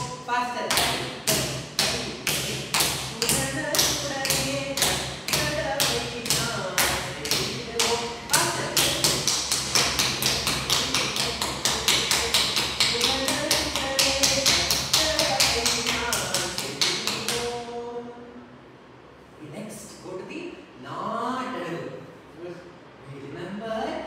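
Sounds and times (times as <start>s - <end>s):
rhythmic tapping: 0.0s - 17.8s.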